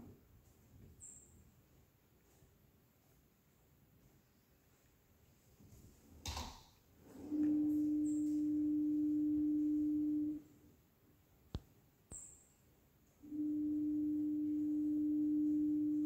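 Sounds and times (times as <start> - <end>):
steady electronic tone: 7.2 - 10.4, 13.2 - 16.0.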